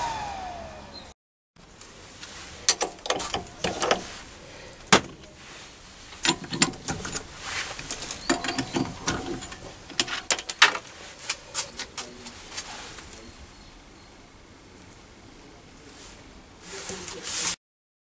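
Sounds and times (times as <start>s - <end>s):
metallic clicks and clinks: 2.7s - 4.1s, 6.1s - 10.9s.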